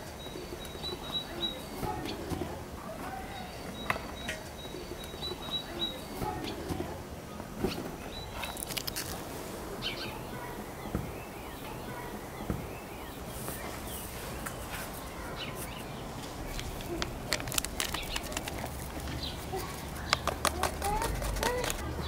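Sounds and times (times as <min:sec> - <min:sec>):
birds chirping faintly: 0:00.0 - 0:22.0
paper sachet tearing: 0:08.4 - 0:09.3, 0:16.4 - 0:21.8.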